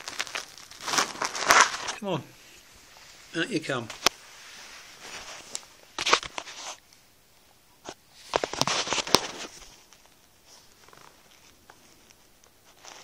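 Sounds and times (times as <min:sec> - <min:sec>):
shopping bag rustling and crackling: 0:00.0 - 0:02.0.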